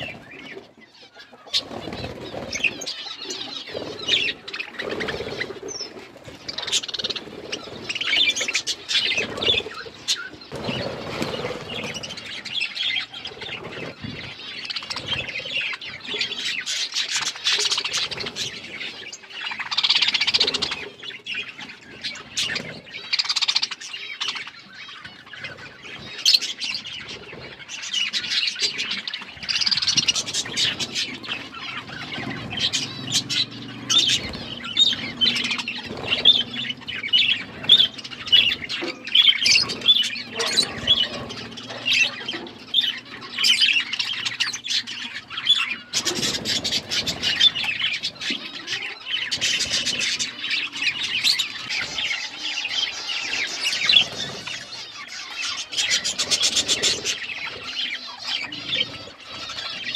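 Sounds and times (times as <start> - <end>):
budgerigars chirping and squawking: 0.0 - 59.9
beaks pecking in metal dish: 26.1 - 59.9.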